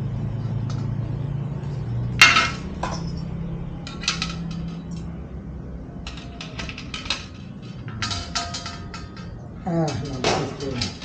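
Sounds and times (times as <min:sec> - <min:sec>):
steady low hum: 0:00.0 - 0:11.0
metal stove parts clanking: 0:02.2 - 0:05.2, 0:06.0 - 0:11.0.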